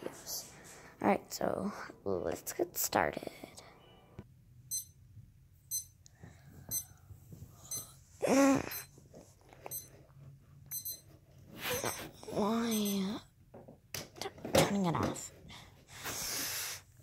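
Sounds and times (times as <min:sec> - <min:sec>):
alarm beeping: 0:04.7 - 0:05.0, 0:05.7 - 0:06.0, 0:06.7 - 0:06.9, 0:09.7 - 0:10.0, 0:10.7 - 0:11.1, 0:11.7 - 0:13.2
person vocal sound: 0:08.2 - 0:08.9.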